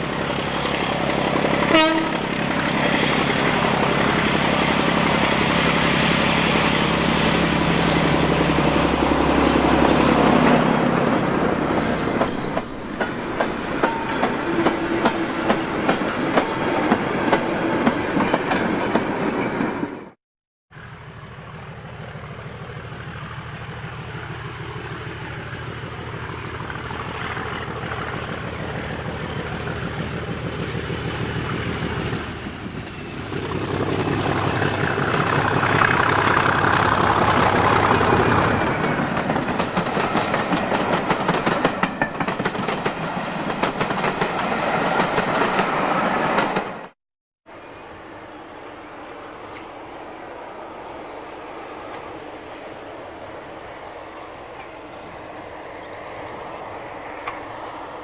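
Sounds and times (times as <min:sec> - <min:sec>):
diesel locomotive approaching: 0:00.0 - 0:58.0
high wheel squeal: 0:05.3 - 0:15.9
wheels clicking over rail joints: 0:33.6 - 0:46.8.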